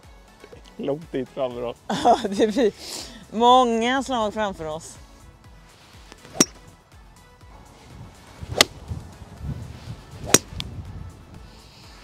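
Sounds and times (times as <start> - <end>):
golf club striking ball: 6.1 - 6.7, 8.5 - 8.8, 10.2 - 10.7.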